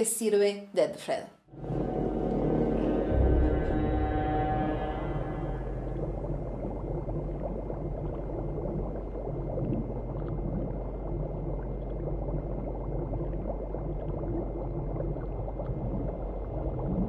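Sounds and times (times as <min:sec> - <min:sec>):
low hum: 0:01.5 - 0:17.0
underwater bubbling: 0:01.5 - 0:17.0.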